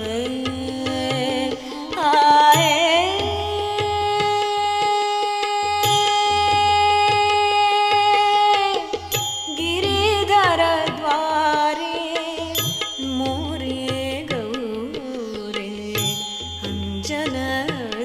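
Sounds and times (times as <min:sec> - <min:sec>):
ornamented vocal melody: 0:00.0 - 0:18.0.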